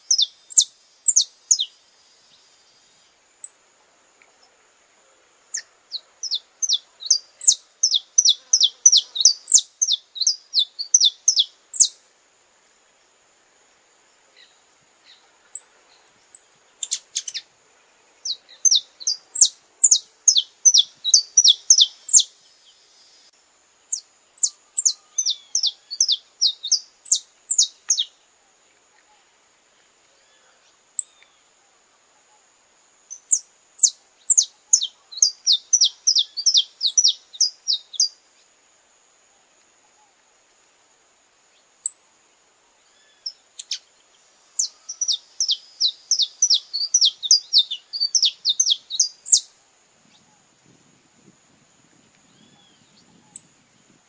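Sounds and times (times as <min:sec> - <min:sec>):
finch singing: 0:00.0 - 0:01.7, 0:05.5 - 0:11.9, 0:18.2 - 0:22.3, 0:23.9 - 0:28.1, 0:33.1 - 0:38.1, 0:44.6 - 0:49.5.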